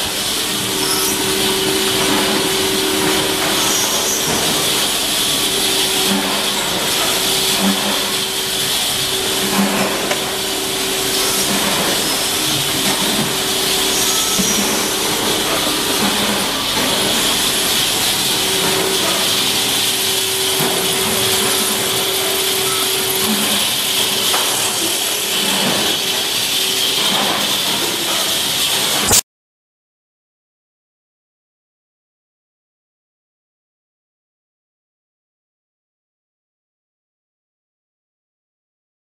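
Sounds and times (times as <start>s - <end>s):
loud hiss: 0.0s - 29.2s
machinery hum: 0.0s - 29.2s.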